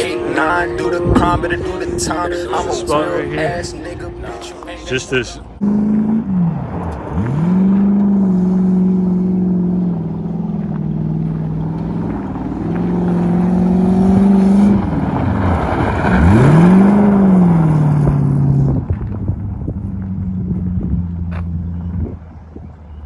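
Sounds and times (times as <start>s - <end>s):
car engine revving: 0.0s - 23.0s
tyres spraying gravel: 10.6s - 18.2s.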